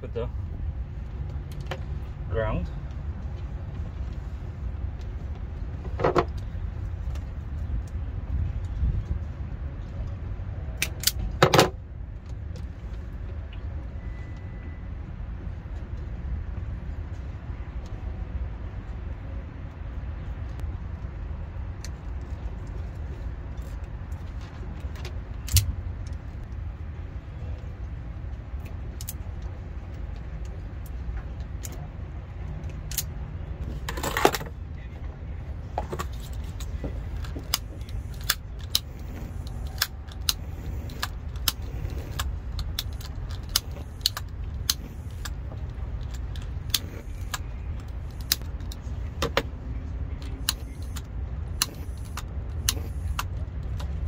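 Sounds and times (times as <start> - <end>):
wire connectors clicking and rattling: 35.7 - 54.0.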